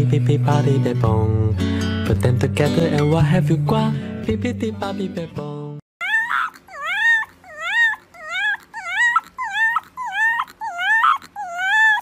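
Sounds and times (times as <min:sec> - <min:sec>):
puppy whining howls: 0:06.0 - 0:12.0.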